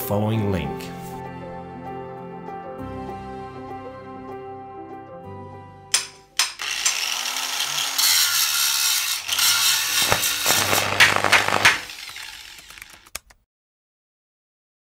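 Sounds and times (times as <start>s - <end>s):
soft background music: 0.0s - 6.4s
hissing metal grinding: 6.4s - 13.2s
sharp hits: 9.8s - 12.0s.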